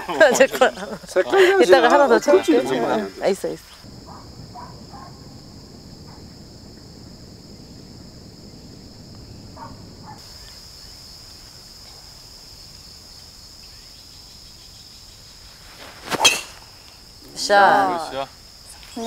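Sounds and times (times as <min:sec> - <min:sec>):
insects chirring: 0:00.0 - 0:19.0.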